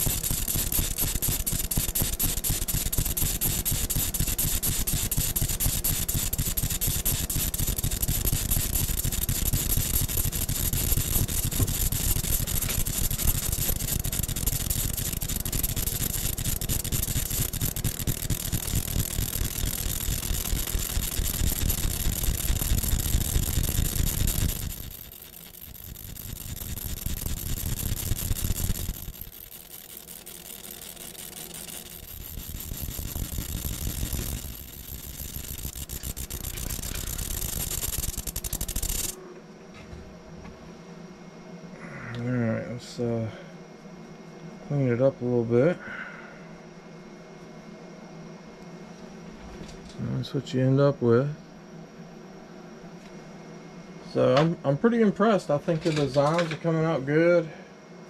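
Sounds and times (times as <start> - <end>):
laser engraver head buzzing: 0.0 - 39.2.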